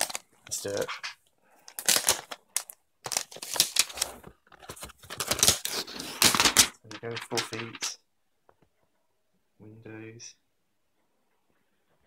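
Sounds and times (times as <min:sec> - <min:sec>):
plastic packaging crinkling: 0:00.0 - 0:07.9.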